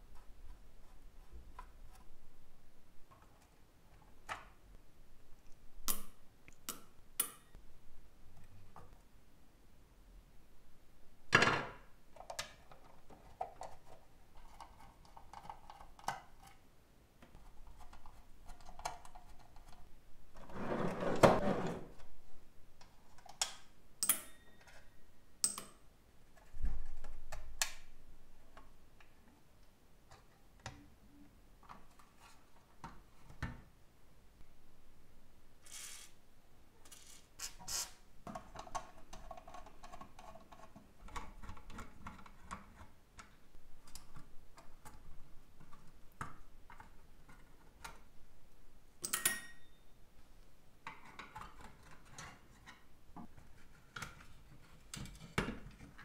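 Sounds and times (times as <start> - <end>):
metal tools tapping metal: 49.0 - 49.8.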